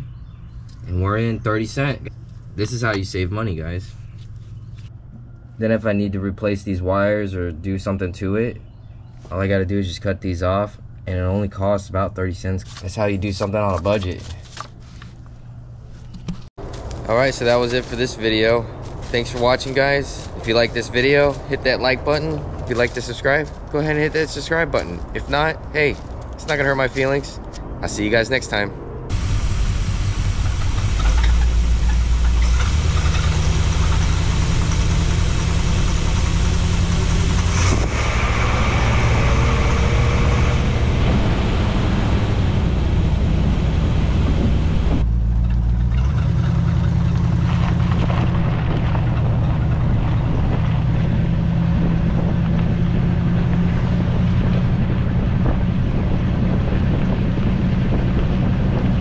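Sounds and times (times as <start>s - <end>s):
car engine idling: 28.0s - 57.9s.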